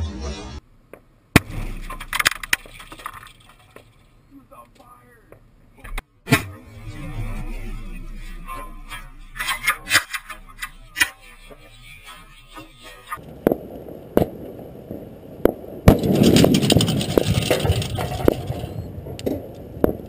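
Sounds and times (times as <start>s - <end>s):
fireworks sharp bangs: 9.0s - 20.0s
fireworks popping and crackling: 12.5s - 20.0s.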